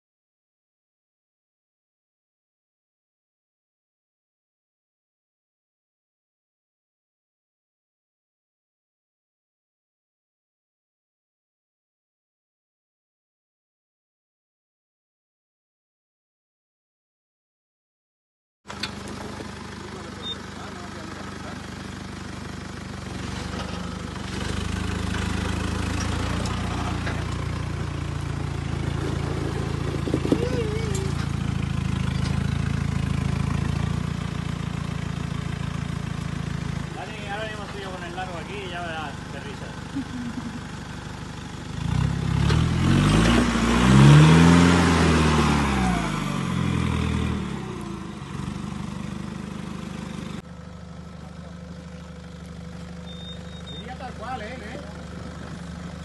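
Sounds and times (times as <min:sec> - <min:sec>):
gravel grinding under tyres: 0:18.7 - 0:39.6, 0:41.4 - 0:56.0
off-road vehicle engine low revs: 0:18.7 - 0:56.0.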